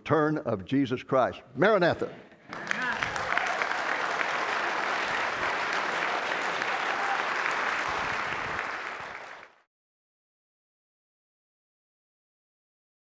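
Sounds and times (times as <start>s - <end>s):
audience applauding: 2.5s - 9.7s.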